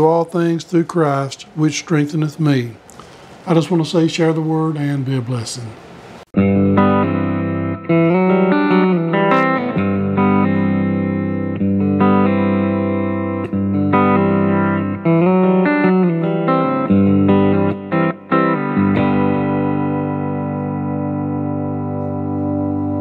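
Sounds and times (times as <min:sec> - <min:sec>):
guitar chords: 0:04.0 - 0:23.0.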